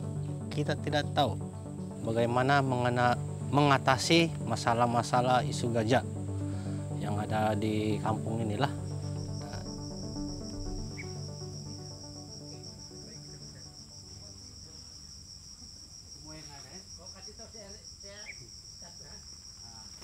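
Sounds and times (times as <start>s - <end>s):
background music: 0.0s - 15.0s
faint wavering calls: 0.0s - 15.2s
insect chorus trilling: 0.0s - 20.0s.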